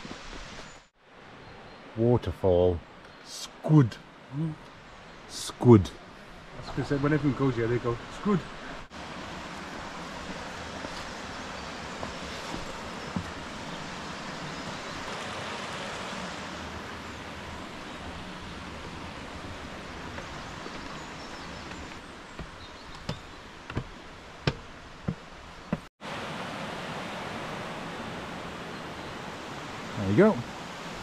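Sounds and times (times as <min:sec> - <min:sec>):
stream rushing over rocks: 0:06.4 - 0:31.0
footsteps on wooden steps: 0:09.4 - 0:14.5, 0:18.0 - 0:25.9.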